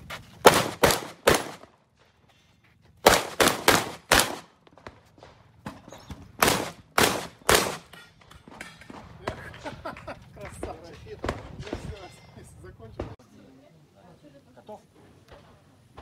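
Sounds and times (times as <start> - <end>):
rapid shotgun shots: 0.4 - 1.7, 3.0 - 4.6, 6.4 - 7.9.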